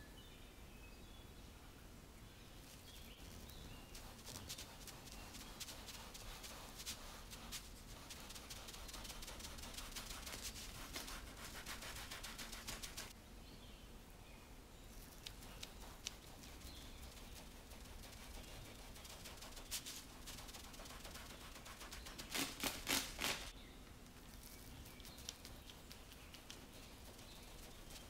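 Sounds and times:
knife scratching baked sponge: 2.8s - 13.1s, 15.0s - 23.5s, 24.4s - 28.0s.

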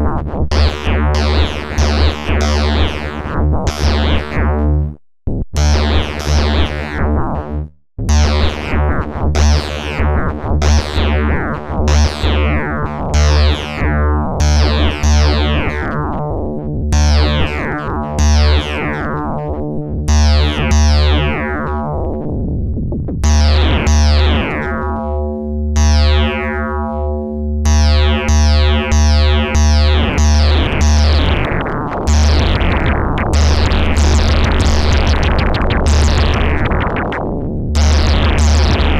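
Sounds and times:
pulsing low bass: 5.6s - 38.9s
dark held synth tones: 14.4s - 38.9s
synthesizer note sequence: 23.2s - 38.9s.

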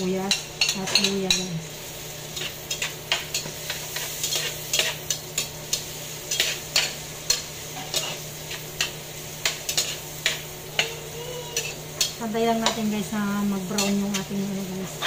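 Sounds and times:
soft sizzle: 0.0s - 15.0s
metal turner scraping a pot: 2.3s - 10.4s.

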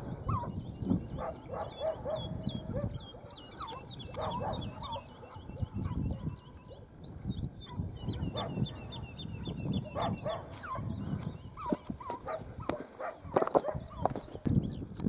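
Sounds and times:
hound yelping barks: 0.2s - 0.6s, 1.2s - 6.8s, 7.7s - 11.0s, 11.6s - 14.2s.

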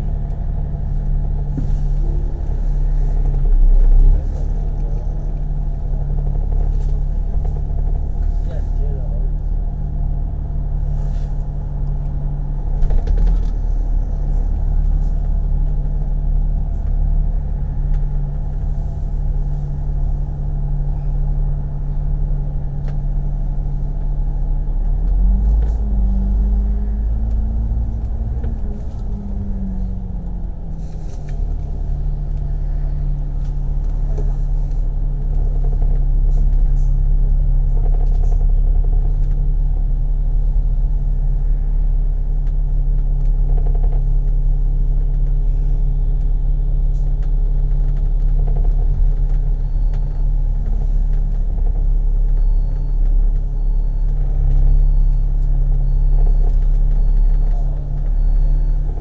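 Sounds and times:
bus engine humming: 0.0s - 59.0s.

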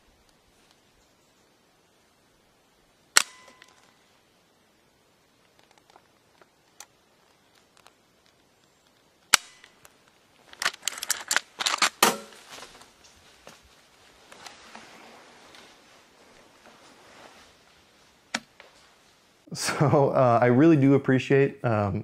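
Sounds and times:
rifle action clicks and rattles: 5.4s - 12.0s.

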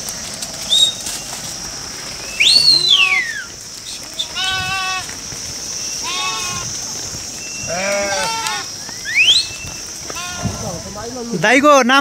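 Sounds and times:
steady high hiss: 0.0s - 12.0s
high sweeping animal call: 2.1s - 5.1s, 5.7s - 10.7s
goats and sheep bleating: 2.2s - 11.0s.

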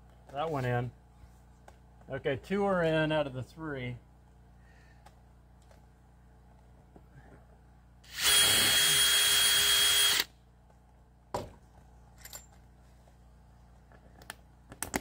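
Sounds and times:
cordless drill driving screw: 8.1s - 10.3s.

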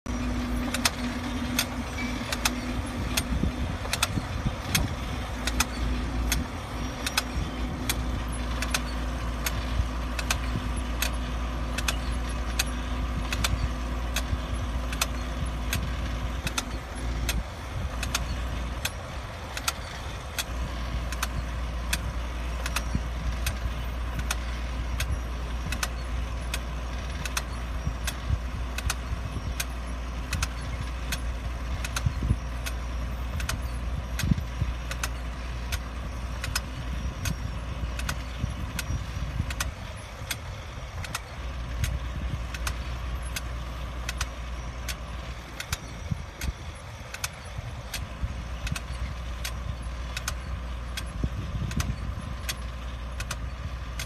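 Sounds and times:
tractor engine running: 0.0s - 54.0s
steady hum: 0.1s - 29.6s
transplanter sharp clicks: 0.1s - 54.0s.

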